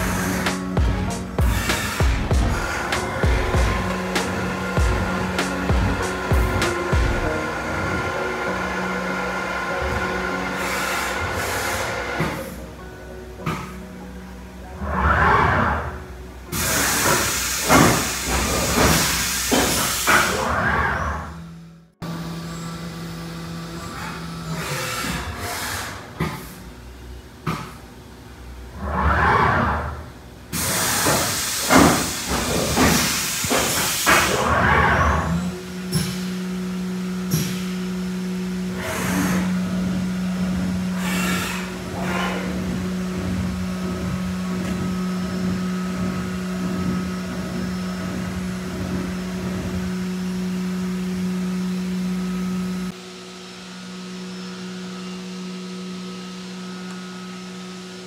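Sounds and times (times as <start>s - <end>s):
loud hiss: 0.0s - 9.2s, 16.5s - 20.5s, 30.5s - 34.5s
spindle humming: 0.0s - 19.2s, 34.2s - 58.0s
cnc mill machine noise: 0.0s - 58.0s.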